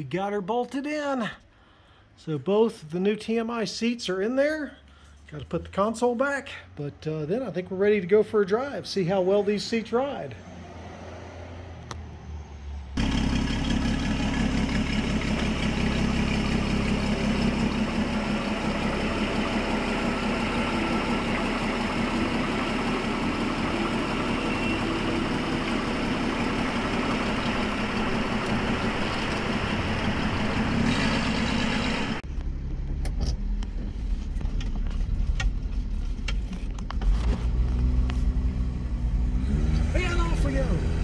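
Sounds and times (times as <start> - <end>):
road and cabin noise: 4.8 - 41.0
car engine running: 13.0 - 41.0.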